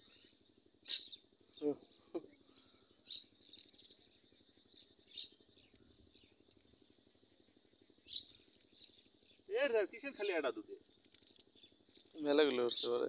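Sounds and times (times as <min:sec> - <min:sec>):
faint high chirps: 0:00.0 - 0:09.6.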